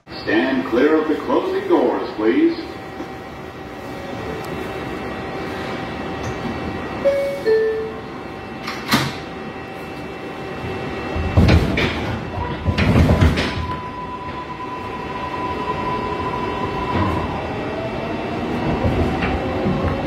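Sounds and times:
train rumbling and clanking: 0:00.0 - 0:20.0
train doors sliding shut: 0:08.5 - 0:14.5.

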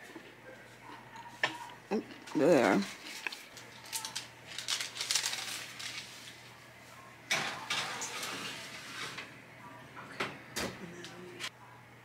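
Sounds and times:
baking tray clattering and scraping: 0:07.3 - 0:09.3.

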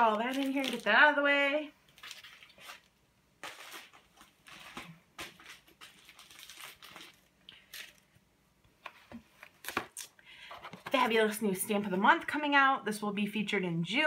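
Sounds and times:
plastic and paper rustling: 0:00.0 - 0:08.0.

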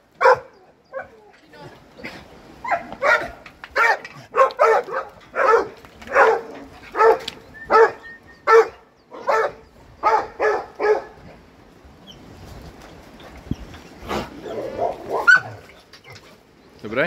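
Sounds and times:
dog barking: 0:00.2 - 0:01.1, 0:02.6 - 0:11.2, 0:14.8 - 0:15.6.

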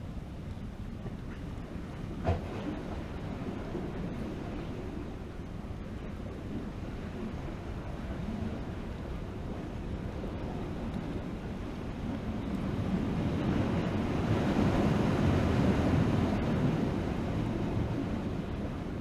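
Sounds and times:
wind buffeting microphone: 0:00.0 - 0:19.0
surf washing against rocks: 0:06.6 - 0:19.0.

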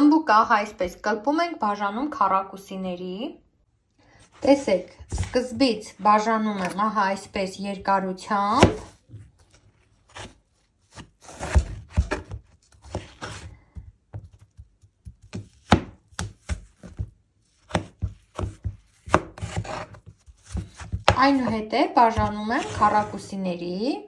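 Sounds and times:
knife slicing on wooden cutting board: 0:17.6 - 0:21.5.

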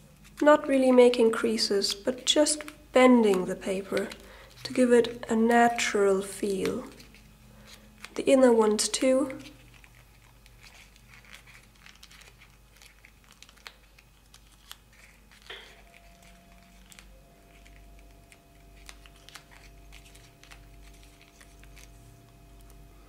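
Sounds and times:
paper crinkling: 0:00.1 - 0:23.0
small paper ticks: 0:09.3 - 0:22.8.

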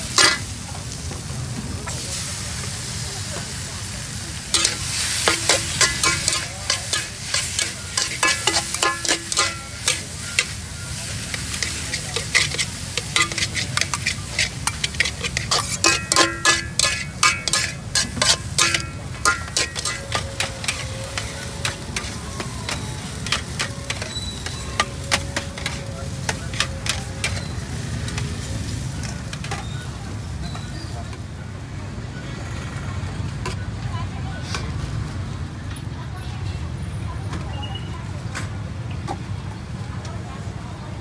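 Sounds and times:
metal spatula clanging on pan: 0:00.0 - 0:00.6, 0:04.5 - 0:28.3
food sizzling in oil: 0:00.0 - 0:30.3.

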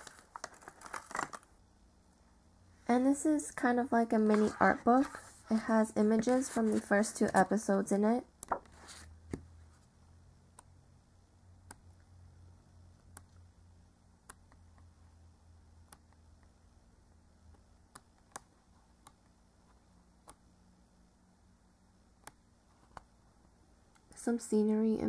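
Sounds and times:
booklet pages turning clicks: 0:08.4 - 0:09.4.

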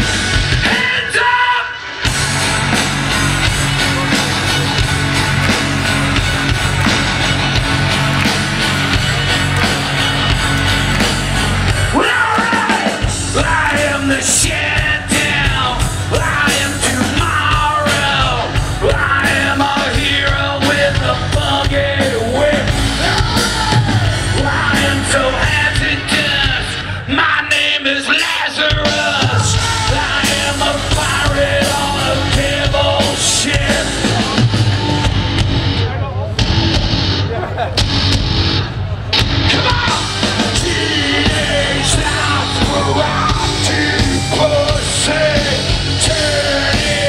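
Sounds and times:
live metal band: 0:00.0 - 0:47.0
man shouting and singing: 0:00.6 - 0:01.9, 0:11.8 - 0:34.8, 0:39.5 - 0:47.0.

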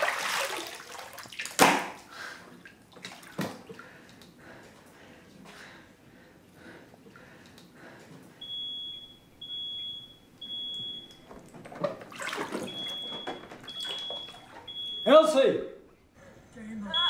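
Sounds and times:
bathwater splashing: 0:00.0 - 0:04.0, 0:08.8 - 0:15.1
smoke alarm beeping: 0:08.4 - 0:11.4, 0:12.6 - 0:15.4.

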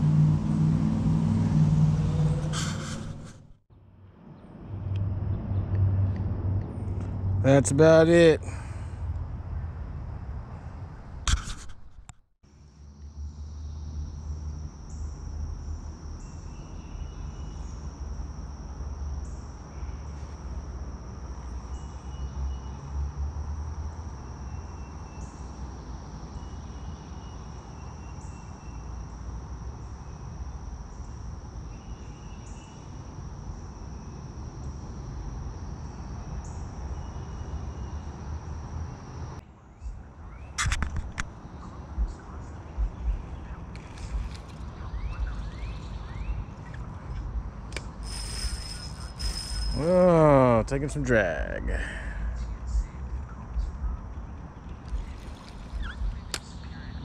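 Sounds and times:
insects droning: 0:12.5 - 0:57.0
short insect chirps: 0:12.6 - 0:50.6
low steady rumble: 0:41.3 - 0:51.4.

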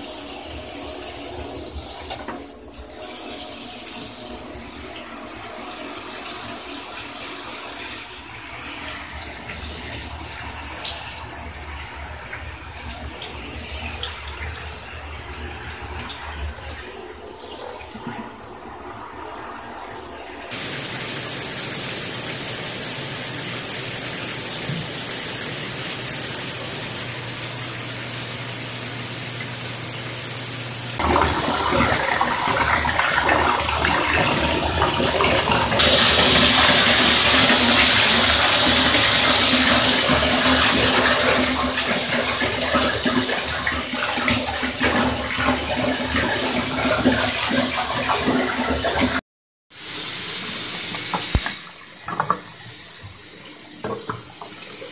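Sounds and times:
shower water spraying: 0:00.0 - 0:54.9.

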